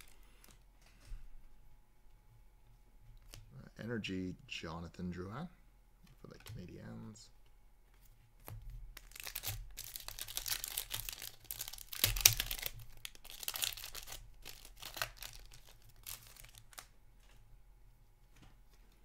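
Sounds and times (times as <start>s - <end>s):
foil wrapper crackling: 0.0s - 0.5s, 8.4s - 16.9s.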